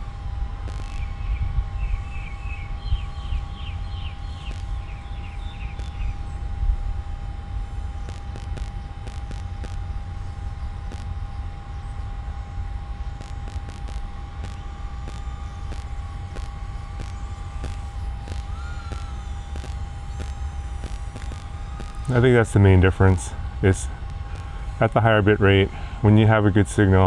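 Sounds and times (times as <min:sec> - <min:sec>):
wind rumble on microphone: 0:00.0 - 0:11.5
faint high whine: 0:00.0 - 0:27.0
bird chirping rapidly: 0:00.8 - 0:06.4.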